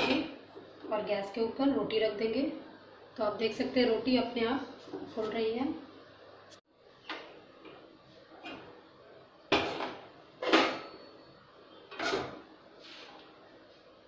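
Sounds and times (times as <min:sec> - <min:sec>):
metal cookware clanking: 0:09.5 - 0:11.1, 0:11.9 - 0:12.4.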